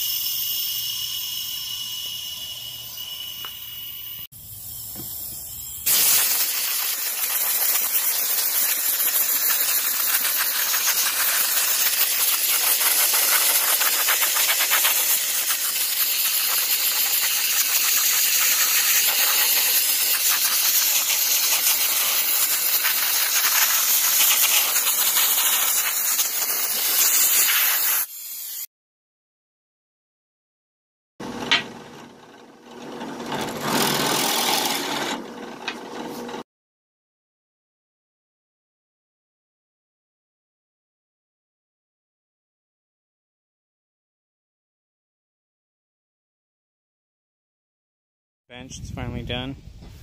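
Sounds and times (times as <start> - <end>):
sandblaster hissing: 0.0 - 28.7.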